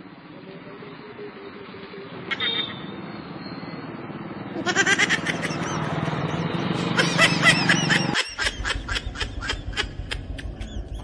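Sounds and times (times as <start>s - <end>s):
low engine hum: 3.9s - 11.0s
men laughing: 4.6s - 6.1s, 6.8s - 11.0s.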